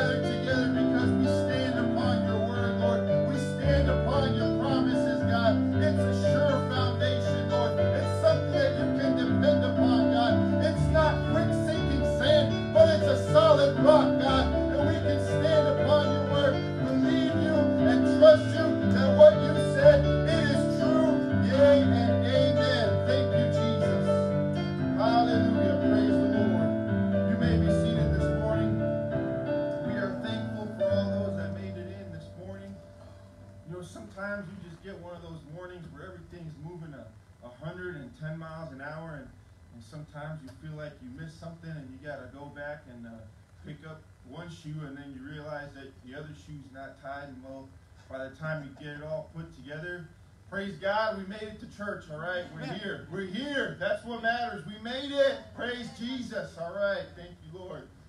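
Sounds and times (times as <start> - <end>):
man singing: 0.0 - 29.1, 29.8 - 32.8, 52.4 - 53.4, 54.4 - 56.4
worship music with guitar: 0.0 - 35.3, 52.2 - 57.2.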